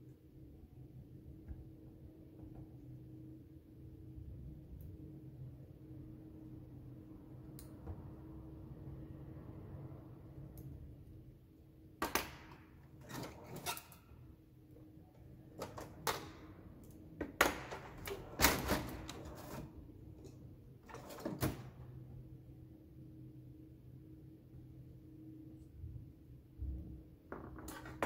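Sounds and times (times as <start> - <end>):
low steady hum: 0.0 - 28.0
metal drawer opened and shut: 12.9 - 14.2, 15.5 - 16.5, 17.4 - 22.0.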